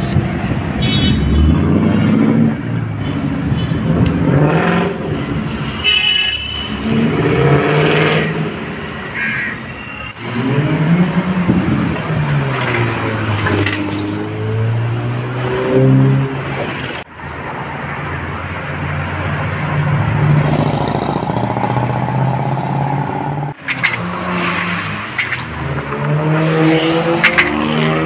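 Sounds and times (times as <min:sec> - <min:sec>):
car horn honking: 0:00.8 - 0:01.6, 0:05.6 - 0:06.9
engine revving: 0:06.7 - 0:08.7, 0:10.1 - 0:17.0, 0:19.8 - 0:28.0
car engines running: 0:10.1 - 0:17.5, 0:18.1 - 0:28.0.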